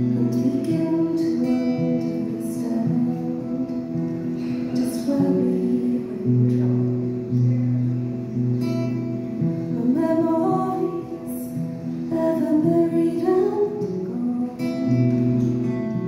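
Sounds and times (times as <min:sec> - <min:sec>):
woman singing: 0:00.0 - 0:06.9, 0:09.7 - 0:15.4
acoustic guitar: 0:00.0 - 0:16.0.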